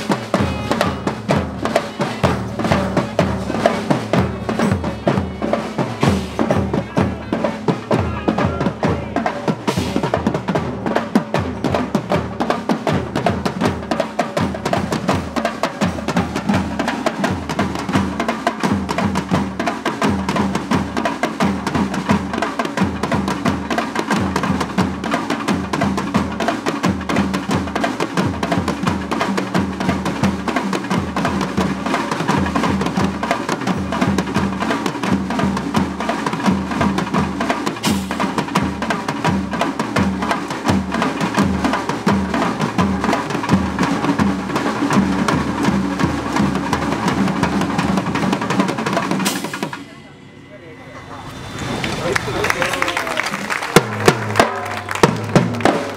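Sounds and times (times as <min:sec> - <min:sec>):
bass drums: 0:00.0 - 0:49.8, 0:53.6 - 0:55.9
barrel drum beaten with stick: 0:00.0 - 0:49.9
marching snare drums: 0:00.0 - 0:49.9, 0:53.3 - 0:55.9
cymbal: 0:49.0 - 0:52.4.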